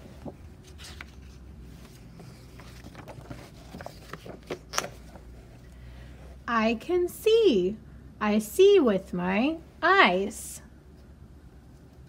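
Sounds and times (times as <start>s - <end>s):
paper pages rustling: 0.0s - 5.6s
low steady hum: 0.0s - 12.0s
page snapping: 2.8s - 5.0s.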